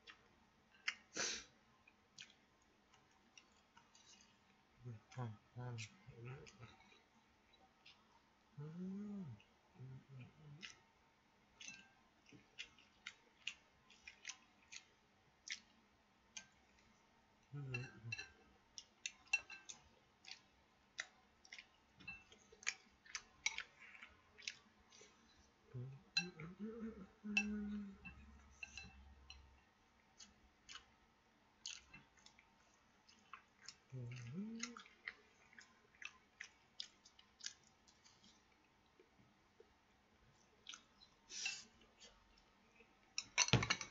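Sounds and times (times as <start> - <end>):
low vocal murmurs: 4.8 - 6.8, 8.6 - 10.6, 17.5 - 18.3, 25.7 - 28.4, 33.9 - 34.9
chewing mouth noises: 11.6 - 15.7, 17.6 - 26.6, 31.6 - 38.6, 40.6 - 42.5.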